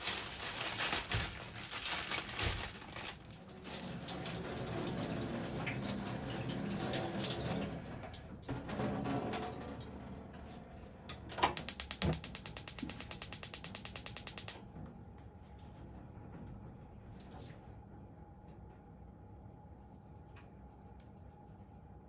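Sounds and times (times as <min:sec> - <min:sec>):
rustling and rinsing at sink: 0:00.0 - 0:10.0
gas stove igniter clicking: 0:11.4 - 0:14.6.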